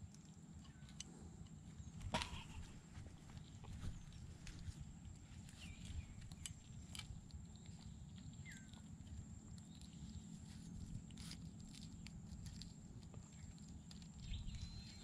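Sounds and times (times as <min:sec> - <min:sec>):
low wind rumble: 0:01.8 - 0:15.0
hands and knife rustling: 0:09.8 - 0:15.0.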